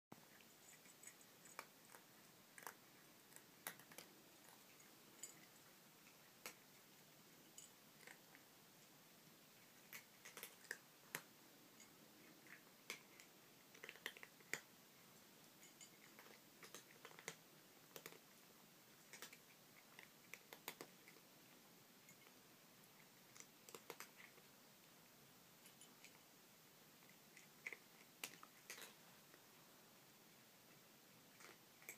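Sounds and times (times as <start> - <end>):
cat crunching dry kibble: 0.3 - 7.1, 7.9 - 8.4, 9.6 - 14.7, 15.5 - 21.3, 23.0 - 24.5, 27.0 - 29.4, 31.3 - 31.9.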